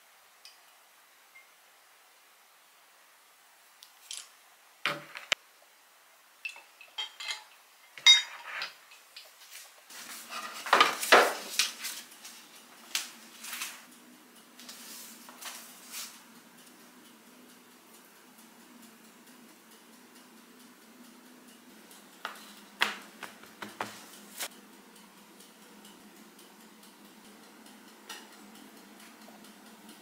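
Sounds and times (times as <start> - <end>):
dishes and cutlery clinking: 6.4 - 9.2.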